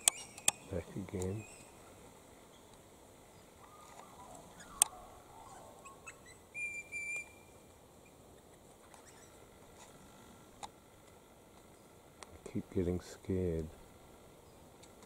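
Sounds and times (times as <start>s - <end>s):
soft chirps: 0.0s - 1.9s, 2.5s - 9.5s
parrots whistling calls: 3.6s - 7.5s.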